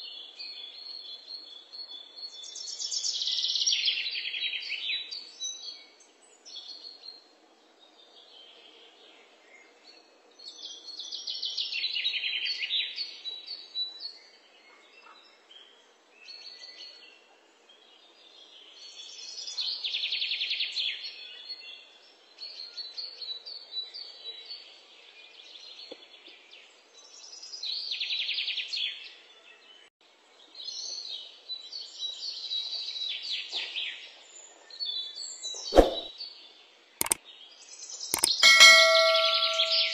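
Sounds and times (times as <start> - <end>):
songbird chirping trills: 38.2 - 39.9.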